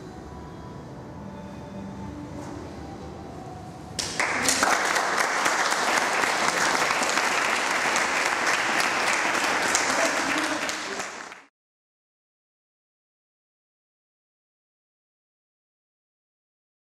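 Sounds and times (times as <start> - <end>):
audience applauding: 4.0 - 11.5.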